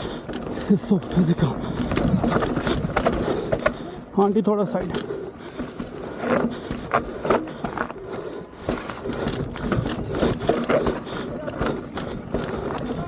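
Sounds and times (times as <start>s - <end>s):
bike rattling over rocks: 0.0s - 13.0s
bike knocking over stones: 0.2s - 3.8s, 8.6s - 13.0s.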